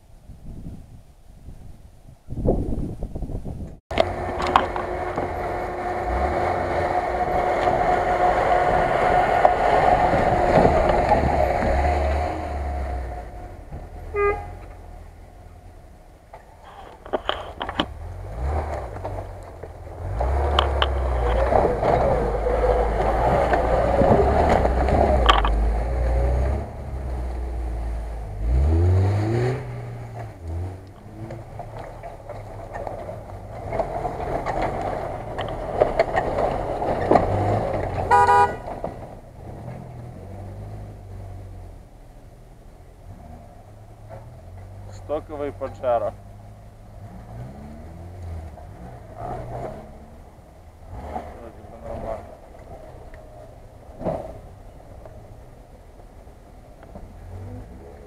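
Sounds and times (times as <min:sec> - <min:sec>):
off-road vehicle engines running: 0:02.2 - 0:58.0
car horn beeps: 0:14.0 - 0:14.8, 0:38.0 - 0:38.8.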